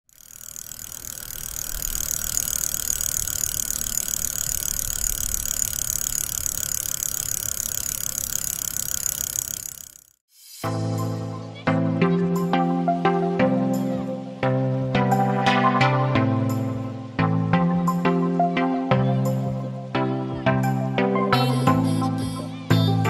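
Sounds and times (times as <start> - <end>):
bicycle freehub ratcheting buzz: 0.0 - 10.7, 21.4 - 23.0.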